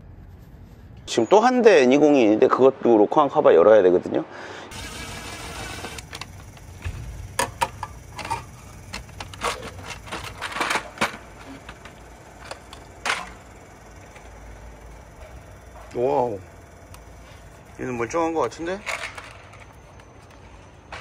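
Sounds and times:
hand tools clicking and clattering: 5.8s - 16.2s, 16.9s - 21.0s.

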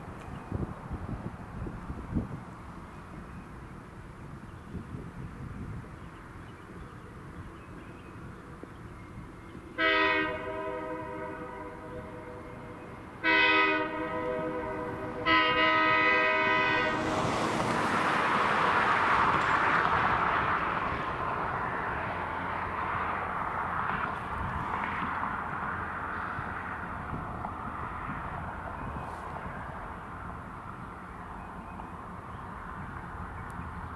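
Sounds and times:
train rumble: 0.0s - 33.9s
locomotive horn blasts: 9.8s - 17.4s.

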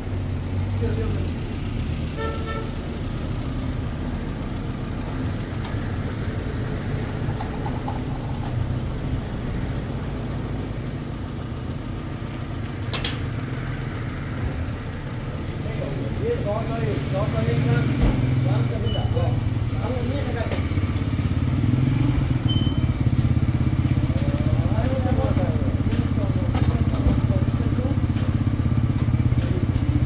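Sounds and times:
vehicle engine running: 0.0s - 30.0s.

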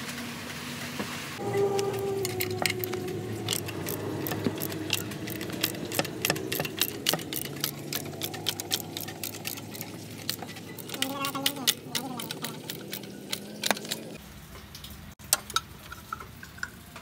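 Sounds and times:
steady low hum: 1.4s - 14.2s
socket ratchet clicking: 2.2s - 14.2s.

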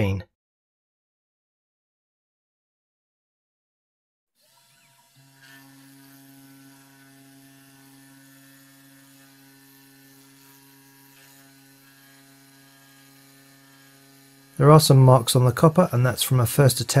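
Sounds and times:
router spindle motor humming: 4.4s - 16.0s.

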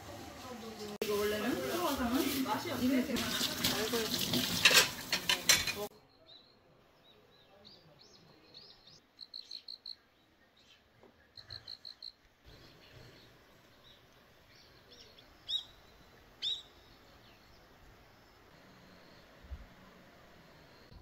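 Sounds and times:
small birds chirping: 5.9s - 21.0s.

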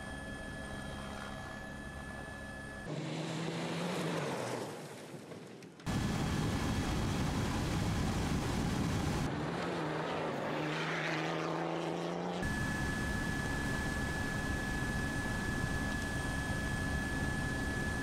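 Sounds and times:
rally vehicle engines: 2.8s - 6.0s, 9.1s - 12.6s.

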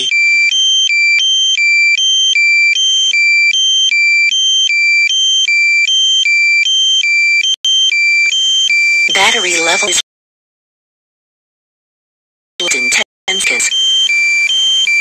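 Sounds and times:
two-tone alarm beeping: 0.0s - 10.0s, 12.6s - 15.0s.

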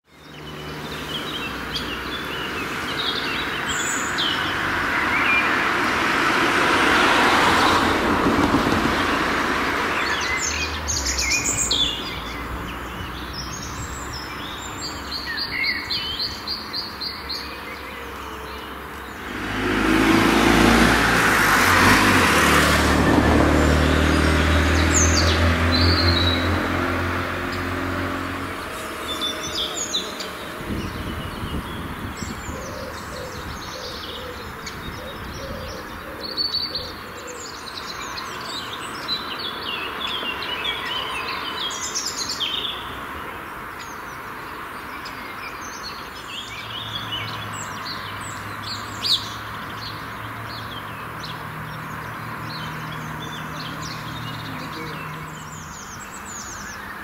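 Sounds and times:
vehicle tyre and engine noise: 0.1s - 17.1s, 18.2s - 57.0s
songbirds chirping and singing: 0.1s - 57.0s
low engine hum: 17.8s - 33.6s.

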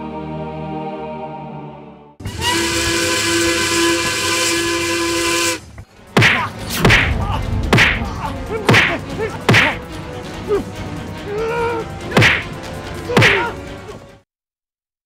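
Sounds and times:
steam train whistle with hiss: 2.2s - 5.7s
sharp whooshing swipe hits: 6.2s - 9.8s, 12.1s - 12.5s.

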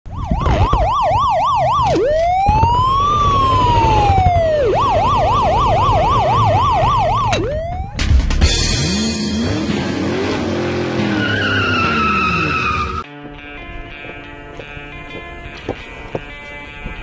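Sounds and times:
police siren yelp and wail: 0.1s - 8.0s, 11.0s - 13.0s.

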